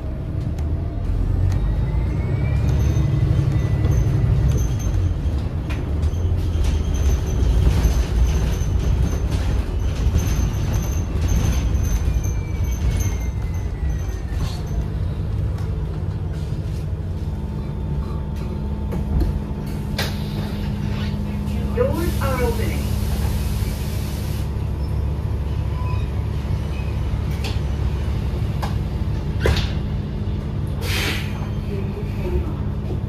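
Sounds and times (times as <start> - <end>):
bus drivetrain and road rumble: 0.0 - 33.0.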